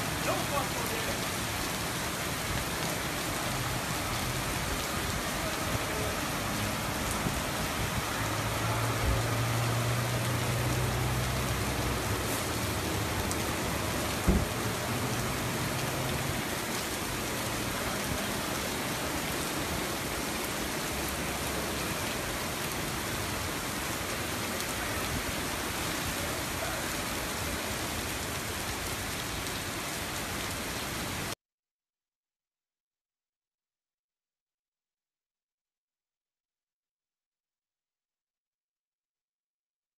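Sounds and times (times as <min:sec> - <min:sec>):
heavy rain on pavement: 0:00.0 - 0:31.4
sharp thump: 0:14.3 - 0:14.5.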